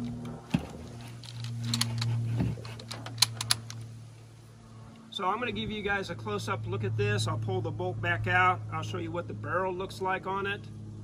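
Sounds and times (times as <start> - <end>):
metallic clicks and rattles of rifle: 0.0 - 3.9
steady low hum: 0.0 - 11.0.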